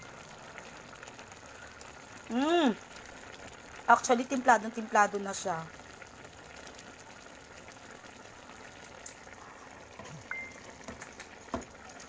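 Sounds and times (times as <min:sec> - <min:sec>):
stew bubbling: 0:00.0 - 0:12.0
high beep: 0:10.2 - 0:10.8.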